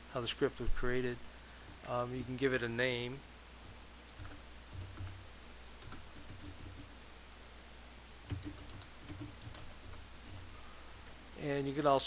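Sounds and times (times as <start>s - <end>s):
typing on a keyboard: 4.2s - 5.2s, 5.8s - 6.9s, 8.3s - 10.5s.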